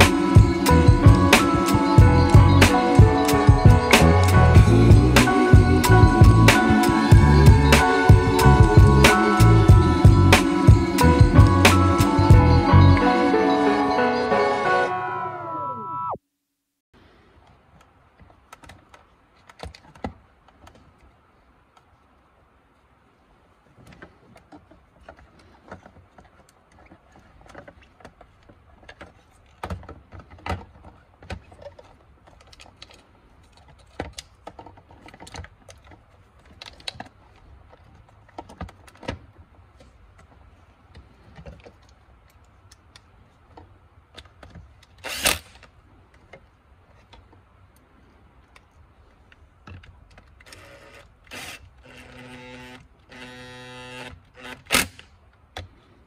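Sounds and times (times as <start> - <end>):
plastic parts clicking: 17.8 - 21.1, 23.8 - 47.4
cordless drill whirring: 50.5 - 54.9.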